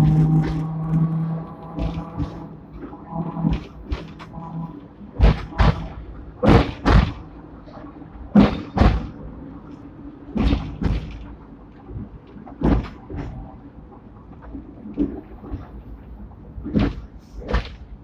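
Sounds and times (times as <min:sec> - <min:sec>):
low running rumble: 0:00.0 - 0:18.0
tram wheels knocking over rail joints: 0:05.2 - 0:07.4, 0:08.3 - 0:09.3, 0:10.3 - 0:11.4, 0:12.6 - 0:13.4.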